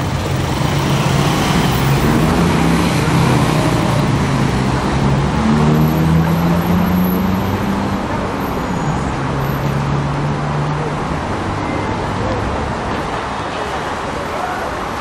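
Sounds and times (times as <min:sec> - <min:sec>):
road traffic: 0:00.0 - 0:15.0
vehicle engine speeding up: 0:00.4 - 0:07.8.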